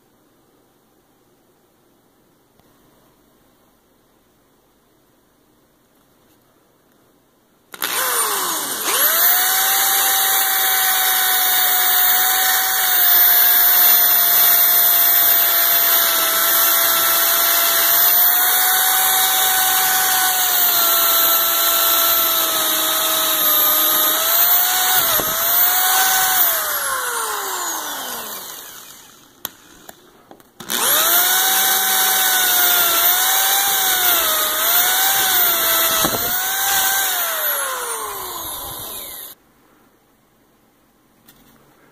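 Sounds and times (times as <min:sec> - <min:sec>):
electric drill boring into wood: 0:07.7 - 0:30.0, 0:30.6 - 0:39.4.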